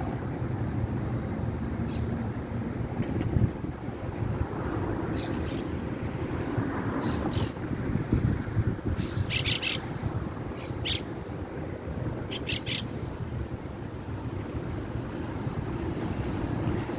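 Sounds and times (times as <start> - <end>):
propeller plane droning overhead: 0.0 - 16.9
harsh bird squawks: 9.0 - 9.8, 12.3 - 12.9.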